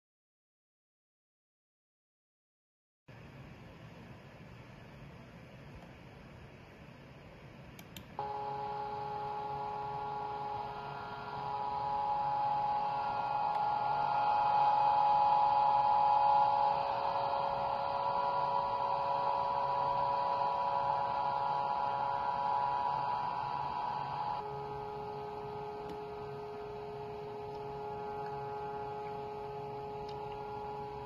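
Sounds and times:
vibrating electric motor hum: 8.2s - 31.0s.

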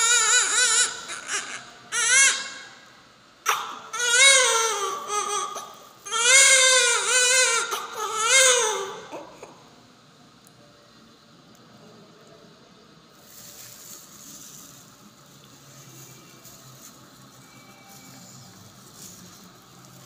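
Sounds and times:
newborn baby crying: 0.0s - 9.7s.

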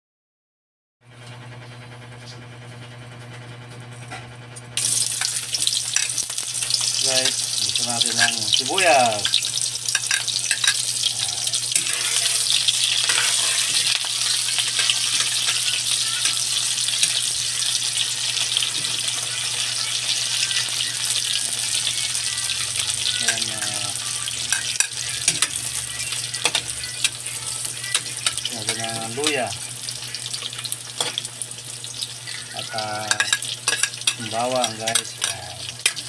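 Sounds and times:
onions sizzling in oil: 4.8s - 36.0s
spatula scraping pan: 9.2s - 17.3s.

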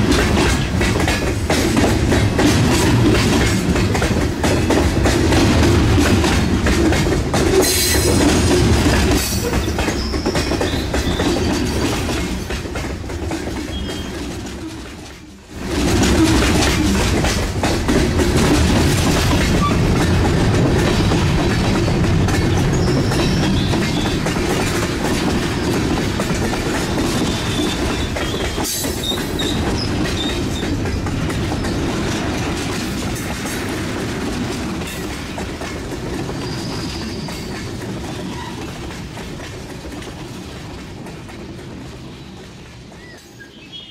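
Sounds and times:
model train rumbling over track: 0.0s - 43.9s
wheels clicking on track: 0.0s - 43.9s.

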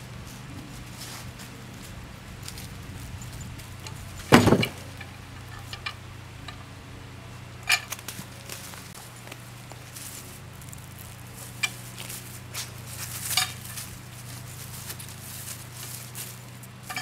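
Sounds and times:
log thudding on steel bed: 3.8s - 6.7s, 11.5s - 14.0s, 15.0s - 17.0s.

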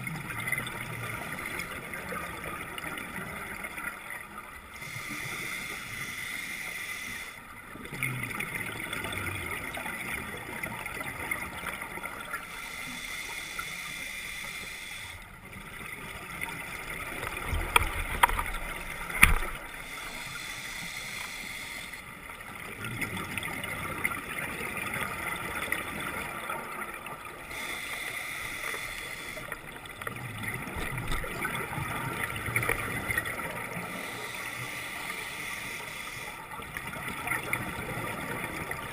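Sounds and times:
exhaled bubbles underwater: 0.0s - 5.4s, 7.5s - 12.4s, 22.0s - 27.8s, 29.2s - 34.7s, 36.3s - 38.9s
scuba regulator breathing: 4.7s - 7.4s, 12.4s - 15.3s, 19.2s - 22.1s, 27.4s - 29.8s, 33.6s - 36.5s.

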